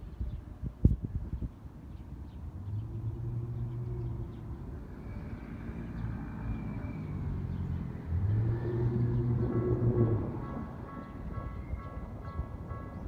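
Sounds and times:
vehicle passing with low hum: 2.3 - 11.6.

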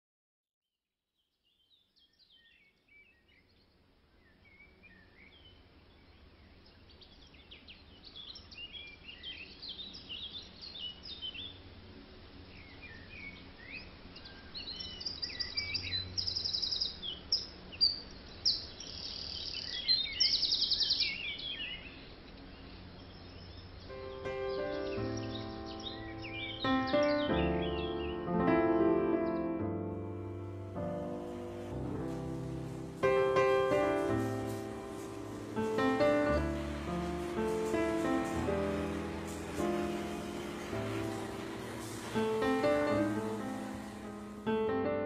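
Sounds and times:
birds singing and chirping: 1.4 - 11.7, 12.4 - 29.7
low steady outdoor hum: 1.5 - 45.0
piano music: 23.9 - 45.0.

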